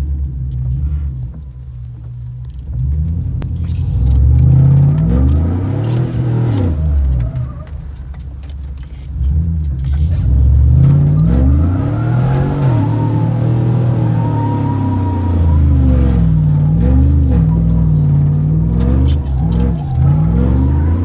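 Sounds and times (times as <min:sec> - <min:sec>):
engine revving: 0:03.0 - 0:07.6, 0:09.2 - 0:21.0
keys jangling: 0:08.2 - 0:09.2.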